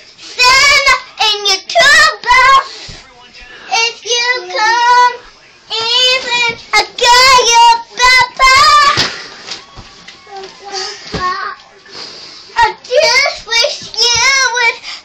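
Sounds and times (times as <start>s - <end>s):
girl singing in high voice: 0.3s - 2.7s, 3.7s - 9.1s, 12.6s - 14.8s.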